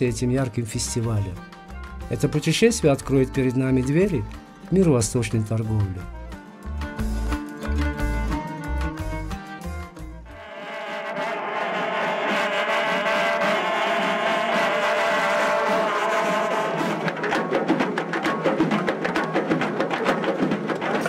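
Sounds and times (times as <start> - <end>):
long brass trumpets blaring: 10.3 - 17.1
frame drums beaten rapidly: 11.8 - 21.0.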